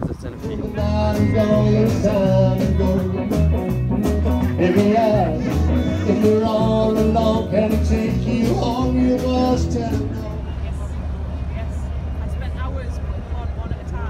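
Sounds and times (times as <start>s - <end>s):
bass line: 0.0s - 10.9s
guitar: 0.0s - 10.9s
person singing: 0.6s - 3.5s, 4.2s - 10.4s.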